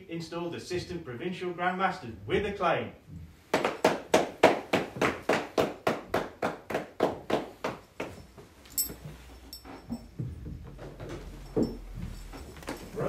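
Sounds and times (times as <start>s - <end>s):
hands clapping in steady rhythm: 3.5s - 8.2s.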